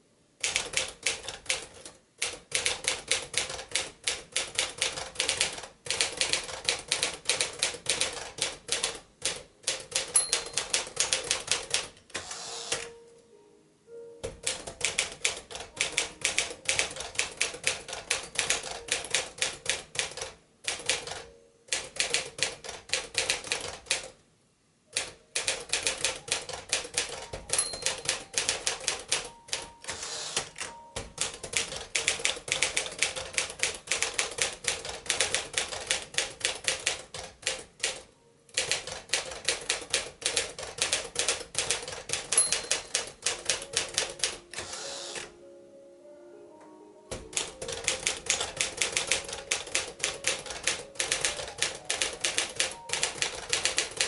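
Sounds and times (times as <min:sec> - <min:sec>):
typewriter carriage return: 0:00.4 - 0:12.9, 0:14.2 - 0:24.1, 0:25.0 - 0:45.3, 0:47.1 - 0:54.0
typewriter keystrokes: 0:00.4 - 0:12.9, 0:14.2 - 0:24.2, 0:25.0 - 0:45.3, 0:47.1 - 0:54.0
typewriter margin bell: 0:09.8 - 0:11.9, 0:14.4 - 0:23.8, 0:25.4 - 0:37.1, 0:38.6 - 0:44.8, 0:47.3 - 0:54.0.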